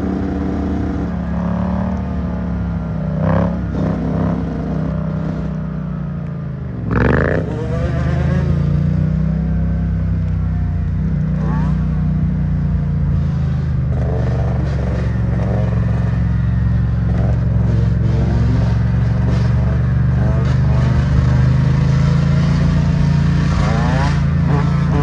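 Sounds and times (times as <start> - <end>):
motorcycle engine drone: 0.0 - 25.0
dirt bike revving: 6.8 - 9.3, 11.1 - 25.0.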